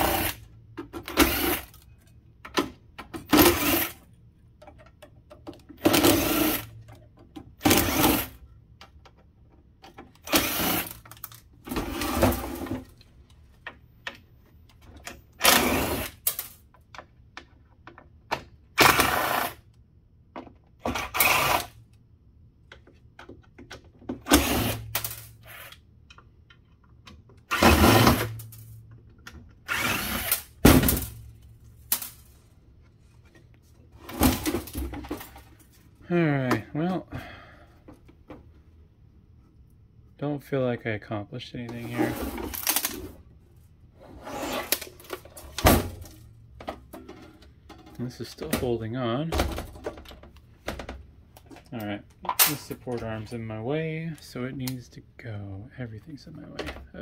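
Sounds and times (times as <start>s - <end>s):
cordless drill whirring: 1.1s - 1.7s, 3.4s - 4.0s, 5.8s - 6.7s, 10.3s - 11.0s, 20.9s - 21.7s, 24.3s - 24.8s, 29.7s - 30.4s.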